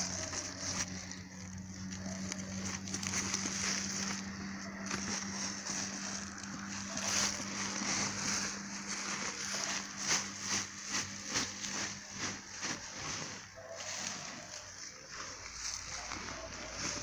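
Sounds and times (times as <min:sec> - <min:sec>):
sack and grass rustling: 0:00.0 - 0:17.0
steady low hum: 0:00.0 - 0:17.0.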